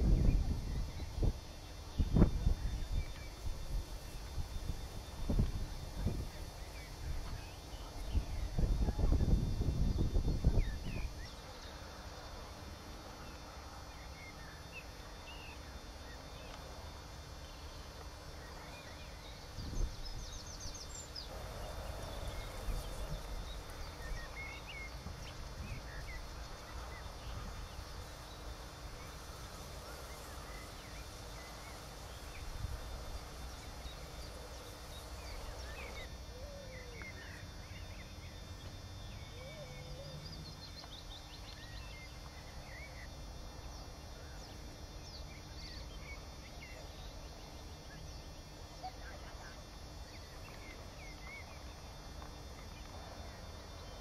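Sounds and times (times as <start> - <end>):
small birds chirping: 13.1 - 54.0.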